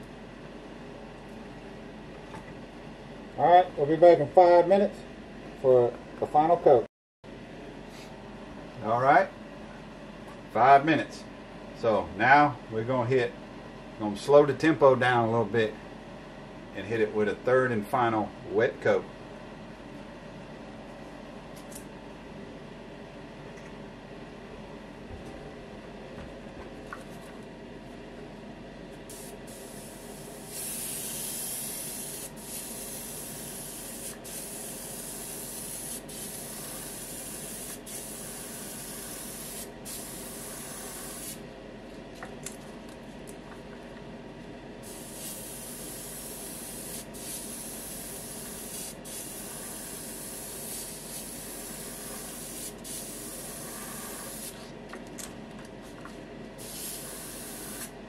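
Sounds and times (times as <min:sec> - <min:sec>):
steady background hum: 0:00.0 - 0:58.0
airbrush spraying hiss: 0:29.1 - 0:41.4, 0:44.8 - 0:54.6, 0:56.6 - 0:57.9.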